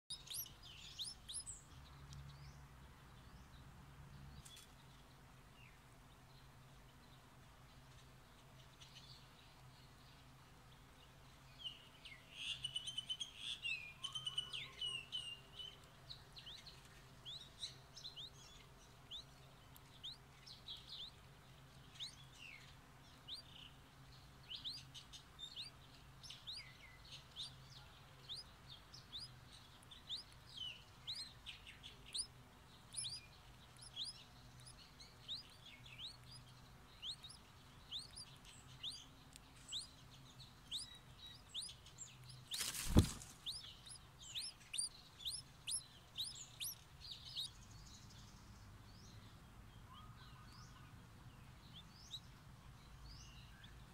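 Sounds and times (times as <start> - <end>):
nestlings begging cheeps: 28.3 - 30.4, 32.0 - 40.0, 40.7 - 47.5.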